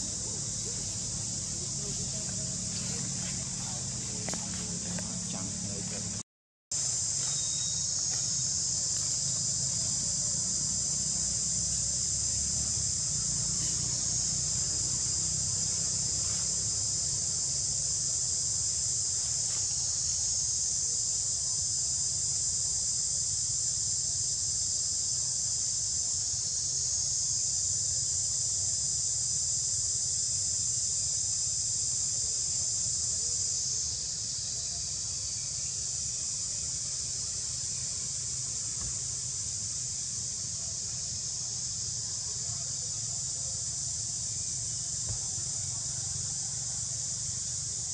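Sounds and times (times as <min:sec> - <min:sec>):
high-pitched insect drone: 0:00.0 - 0:06.2, 0:06.8 - 0:47.9.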